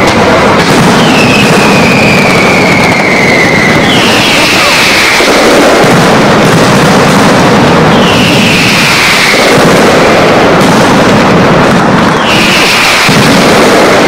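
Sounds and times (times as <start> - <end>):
firecracker barrage: 0.0 - 14.0
falling whistle: 1.0 - 5.1.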